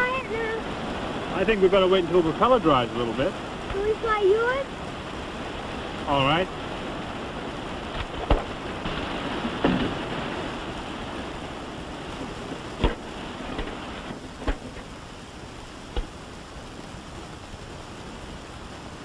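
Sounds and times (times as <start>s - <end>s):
steady hiss: 0.0s - 19.0s.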